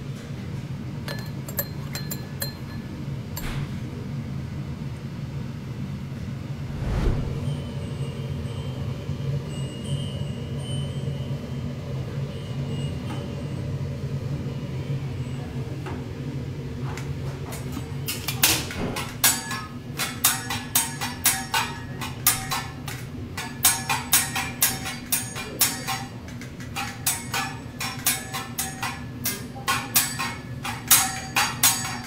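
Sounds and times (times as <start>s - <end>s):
steady low hum: 6.4s - 9.2s.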